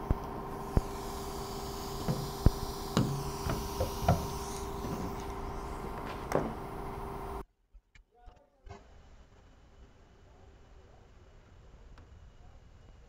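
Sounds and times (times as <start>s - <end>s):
power tool tapping sheet metal: 0.0s - 7.4s
steady hum: 0.0s - 7.4s.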